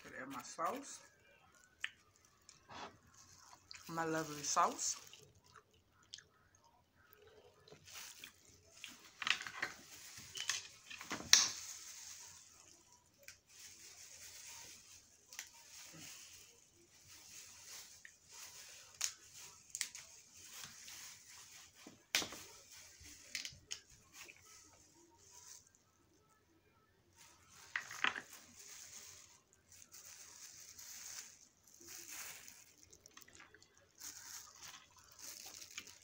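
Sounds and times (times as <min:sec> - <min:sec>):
plastic gloves crinkling: 0:00.0 - 0:36.0.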